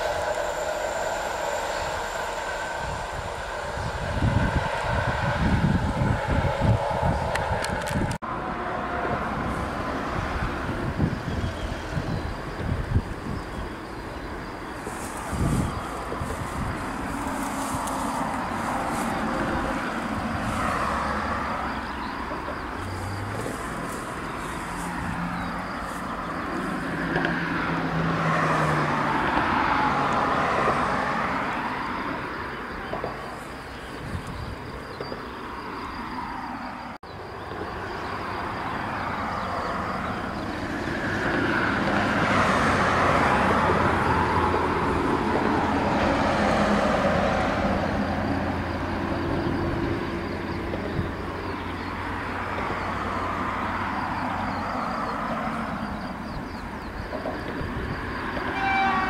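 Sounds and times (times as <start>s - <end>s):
diesel locomotive engine running: 0.0s - 36.2s
train rolling along track: 0.0s - 59.0s.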